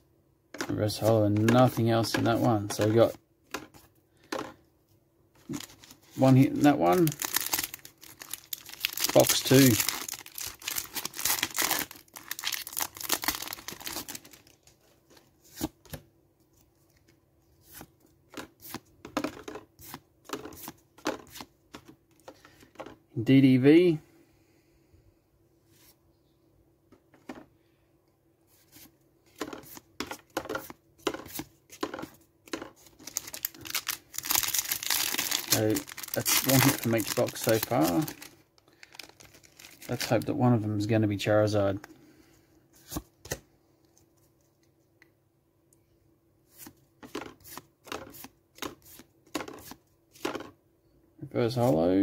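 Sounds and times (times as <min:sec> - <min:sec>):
cards sliding and flicking: 0:28.6 - 0:32.6, 0:46.5 - 0:50.5.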